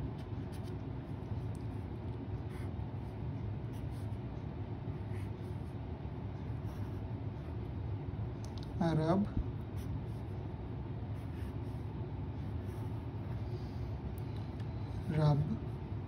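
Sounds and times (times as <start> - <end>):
marker pen writing on paper: 0.0 - 1.1
low room hum: 0.0 - 16.0.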